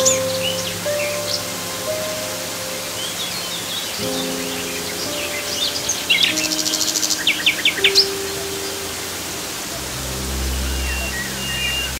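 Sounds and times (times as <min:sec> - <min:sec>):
soft background music: 0:00.0 - 0:11.9
songbirds chirping: 0:00.0 - 0:11.9
waterfall rushing: 0:00.0 - 0:11.9.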